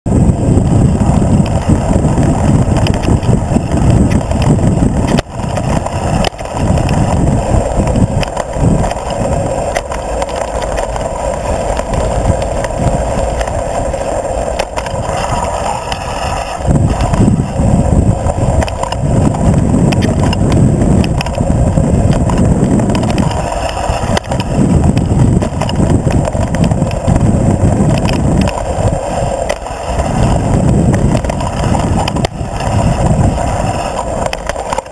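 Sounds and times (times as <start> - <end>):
knobby tyres on dirt: 0.0 - 34.9
wind rumble on microphone: 0.0 - 34.9
bike rattling over stones: 0.1 - 34.9.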